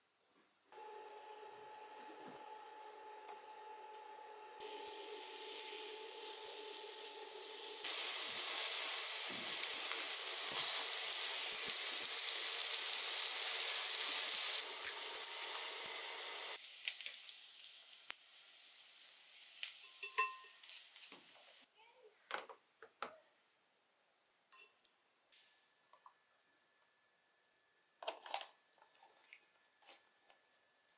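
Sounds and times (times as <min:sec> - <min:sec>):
food sizzling in pot: 0:04.6 - 0:21.7.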